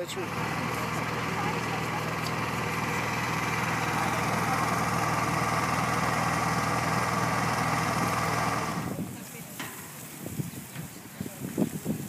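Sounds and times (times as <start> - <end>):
generator engine humming: 0.0 - 9.6.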